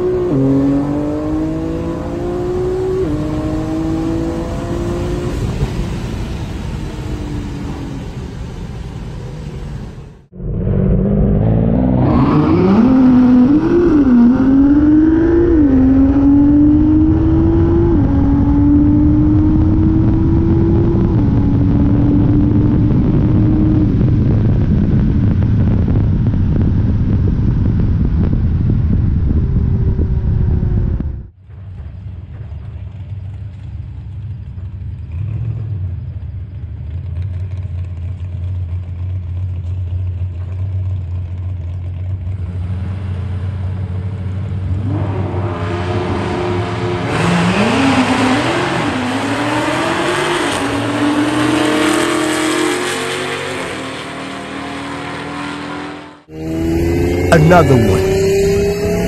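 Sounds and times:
cars accelerating hard: 0.0s - 8.4s, 9.7s - 24.5s, 42.3s - 59.0s
car engine and road noise: 0.0s - 59.0s.

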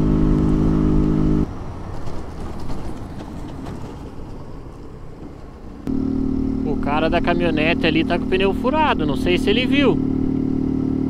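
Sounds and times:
wind and road noise: 0.0s - 11.0s
small motorcycle engine running: 5.9s - 11.0s.

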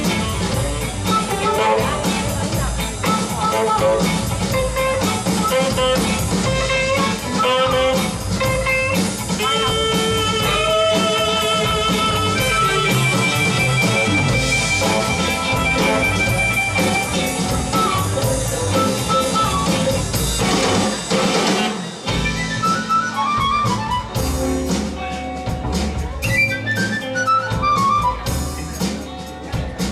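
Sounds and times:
saxophone: 0.0s - 20.9s
drum kit: 0.0s - 29.9s
electric guitars: 0.0s - 29.9s.

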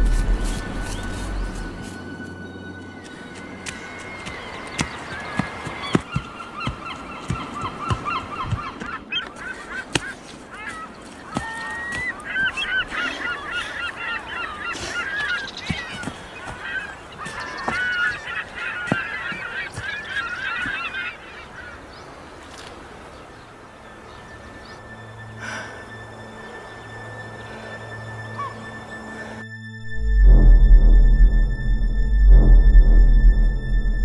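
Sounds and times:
running footsteps on forest floor: 0.0s - 21.1s
geese honking: 0.0s - 21.9s, 24.0s - 29.4s.

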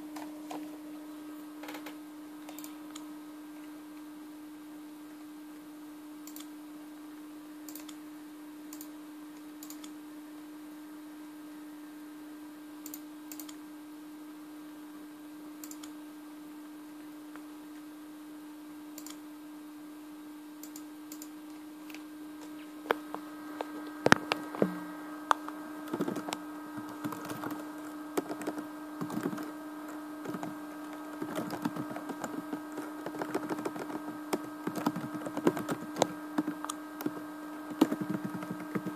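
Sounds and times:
steady low hum: 0.0s - 38.9s
keyboard key clicking: 28.2s - 29.5s, 31.1s - 38.9s.

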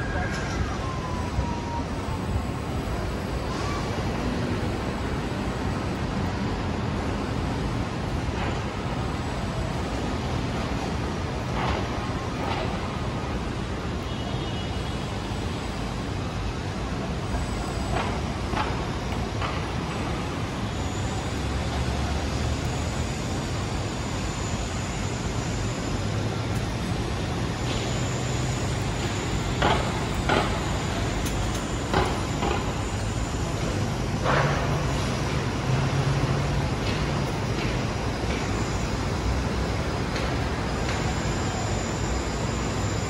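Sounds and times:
low hum of heavy engine: 0.0s - 43.0s
traffic engine and tyre noise: 0.0s - 43.0s.

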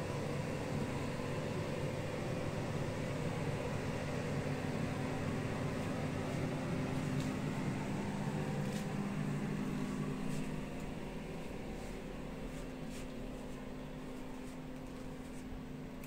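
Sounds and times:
ventilation fan humming: 0.0s - 16.0s.

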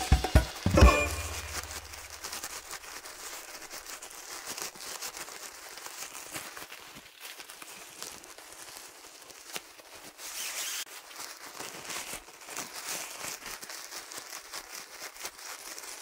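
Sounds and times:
music chord: 0.0s - 2.1s
nylon fabric rustling and crinkling: 1.0s - 16.0s.

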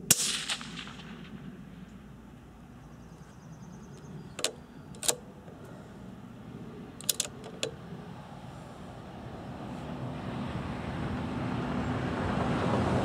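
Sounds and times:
rifle bolt metallic clicks: 4.0s - 5.8s, 7.0s - 7.8s.

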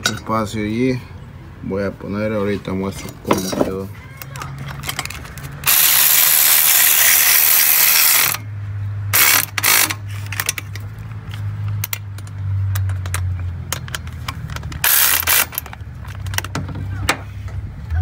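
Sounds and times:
power ratchet spinning: 4.8s - 8.4s, 9.1s - 10.6s, 14.4s - 15.8s
ratchet clicks: 9.2s - 10.8s, 11.8s - 16.5s.

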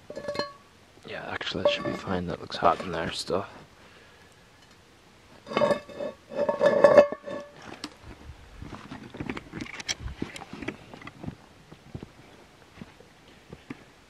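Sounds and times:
metal cookware clanking: 0.1s - 0.6s, 1.6s - 3.0s, 5.5s - 7.6s.

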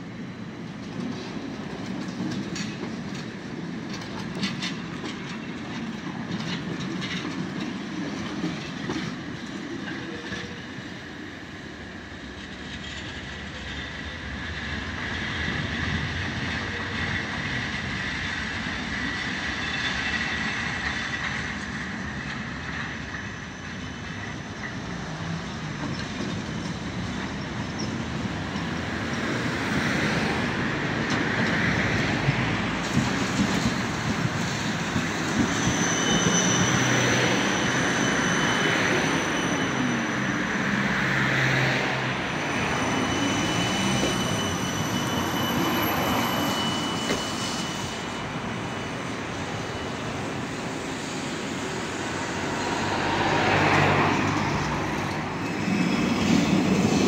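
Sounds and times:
tram rumbling on rails: 0.0s - 57.0s
high wheel squeal: 12.6s - 57.0s.

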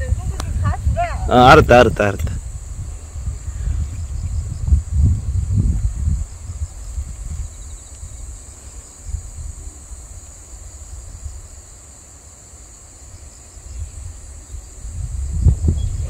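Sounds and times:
insects chirring: 0.0s - 16.0s.

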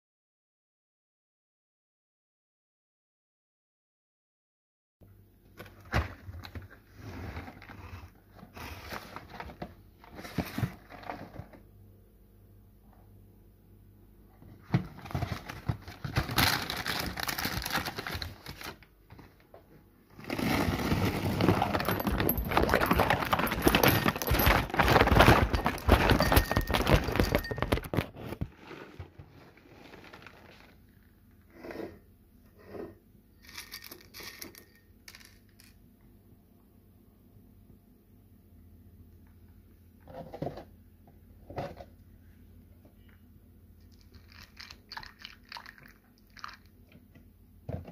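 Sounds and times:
plastic bag crinkling: 15.1s - 18.9s, 20.2s - 31.1s
cereal rattling into ceramic bowl: 20.5s - 28.1s, 33.4s - 35.8s.

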